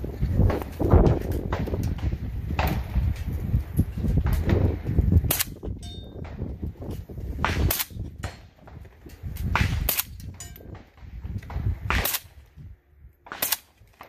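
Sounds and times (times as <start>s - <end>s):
wind rumbling on microphone: 0.0s - 14.0s
metallic ring: 5.8s - 6.2s
suppressed rifle shots: 7.4s - 8.6s, 9.4s - 12.4s, 13.3s - 14.0s.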